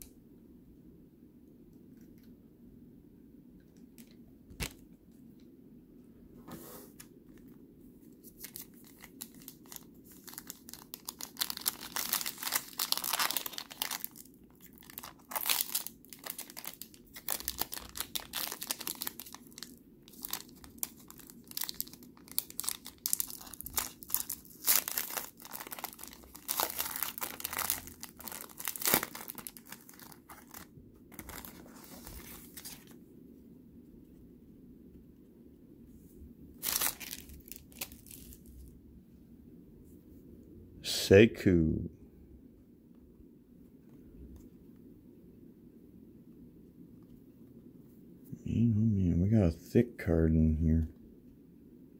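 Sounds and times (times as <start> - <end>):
foil wrapper crinkling and tearing: 8.2 - 33.0, 36.6 - 38.7.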